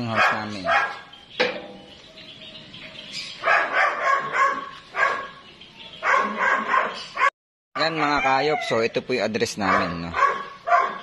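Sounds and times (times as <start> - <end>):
dog barking: 0.0 - 1.1, 3.4 - 5.4, 6.0 - 8.3, 9.6 - 11.0.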